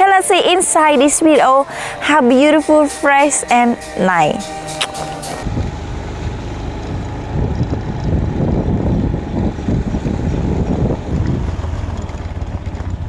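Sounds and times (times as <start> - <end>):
wind buffeting microphone: 5.4 - 13.0.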